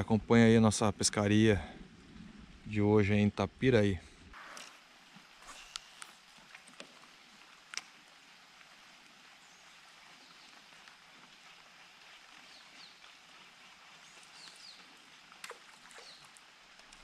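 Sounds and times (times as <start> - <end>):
faint steady hiss: 0.0 - 17.0
faint bird chirps: 15.9 - 16.4.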